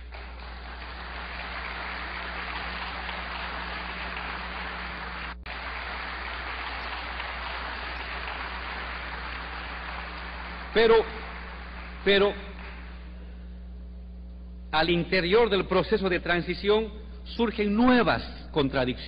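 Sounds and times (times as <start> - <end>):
large audience applauding: 0.0 - 13.1.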